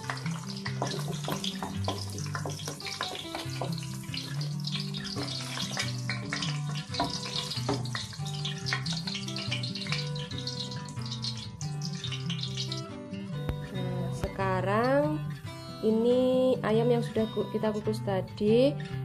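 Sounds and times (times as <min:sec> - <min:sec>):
oil sizzling in a wok: 0:00.0 - 0:13.0
background music with bass line: 0:00.0 - 0:19.0.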